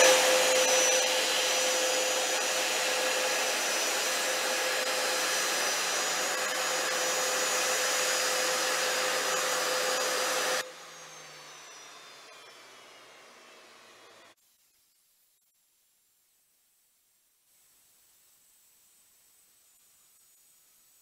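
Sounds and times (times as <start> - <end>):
jet engines rushing: 0.0 - 10.6
high whine sliding down: 0.0 - 14.2.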